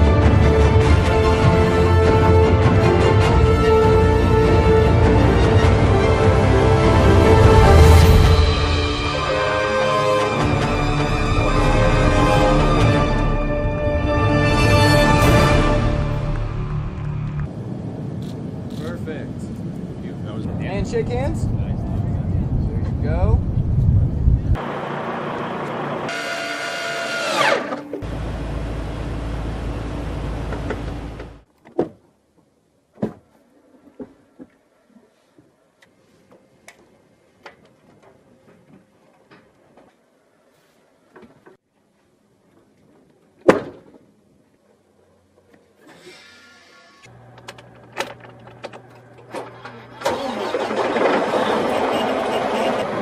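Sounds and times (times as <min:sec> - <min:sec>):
diesel engine starting and running: 0:24.5 - 0:31.4, 0:46.9 - 0:53.0
small electric motor whining: 0:46.0 - 0:47.2.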